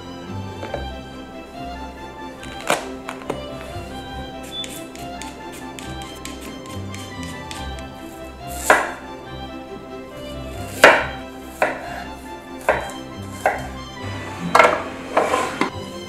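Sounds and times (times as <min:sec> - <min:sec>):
knife chopping on wooden board: 0:08.6 - 0:09.0, 0:10.7 - 0:12.0, 0:12.6 - 0:13.7, 0:14.5 - 0:15.7.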